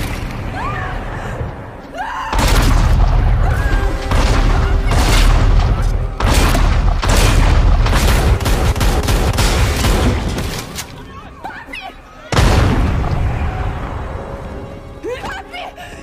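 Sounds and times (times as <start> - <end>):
music: 0.5 - 16.0
heavy booming impacts and crashes: 12.3 - 14.3.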